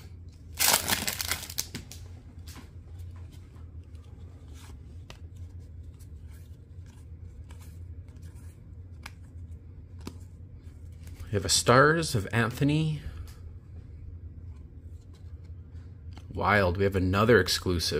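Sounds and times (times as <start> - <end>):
steady low hum: 0.0 - 17.9
foil wrapper crinkling: 0.5 - 2.0.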